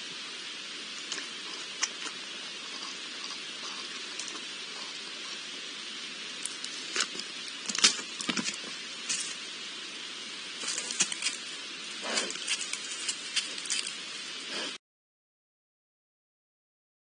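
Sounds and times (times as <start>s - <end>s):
steady hiss: 0.0s - 14.8s
boar rooting with taps and knocks: 6.4s - 9.4s, 10.6s - 14.1s.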